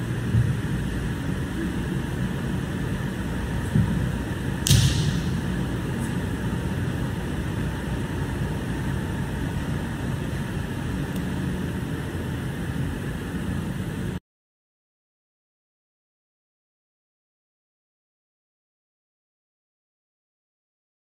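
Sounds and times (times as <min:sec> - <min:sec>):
ventilation hum: 0:00.0 - 0:14.2
sharp smack: 0:04.6 - 0:05.5.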